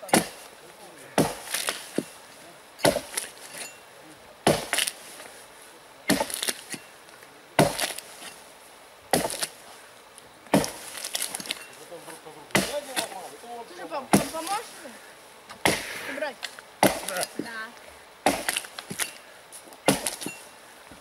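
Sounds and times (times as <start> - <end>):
axe chopping wood: 0.0 - 0.5, 1.1 - 2.2, 2.8 - 3.7, 4.4 - 5.0, 6.1 - 6.9, 7.6 - 8.4, 9.1 - 9.6, 10.5 - 11.6, 12.5 - 13.2, 14.1 - 14.6, 15.5 - 16.2, 16.8 - 17.6, 18.2 - 19.2, 19.8 - 20.4
wood splintering crackle: 0.0 - 3.8, 4.4 - 5.4, 6.0 - 8.4, 9.1 - 13.4, 15.6 - 20.4.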